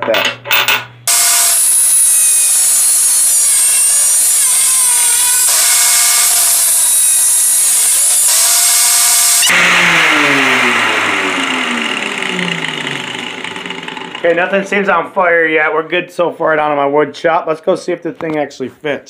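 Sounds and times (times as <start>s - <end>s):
angle grinder cutting metal: 1.1s - 14.4s
grinder motor winding down: 1.1s - 14.8s.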